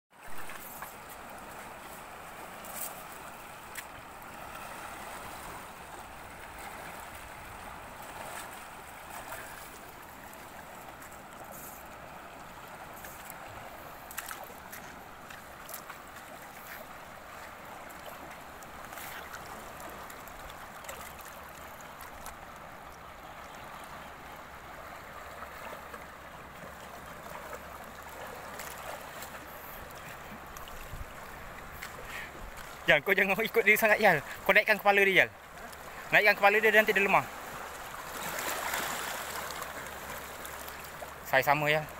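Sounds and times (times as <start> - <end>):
sea water washing among rocks: 37.2 - 41.4.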